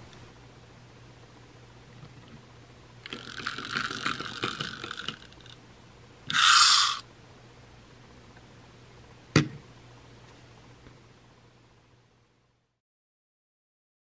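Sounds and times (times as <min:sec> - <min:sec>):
toy gear clicks rattling: 0:03.0 - 0:05.6, 0:06.3 - 0:07.0
toy gears whirring: 0:03.0 - 0:05.6, 0:06.3 - 0:07.0.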